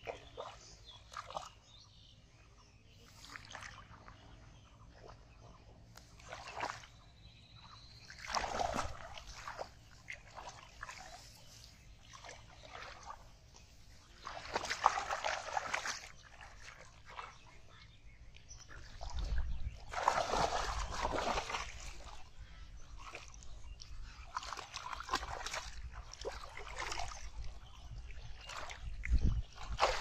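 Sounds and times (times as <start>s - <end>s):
hands splashing in muddy water: 6.0s - 7.0s, 8.1s - 13.4s, 14.0s - 17.4s, 18.8s - 22.2s, 23.0s - 27.6s, 28.3s - 30.0s.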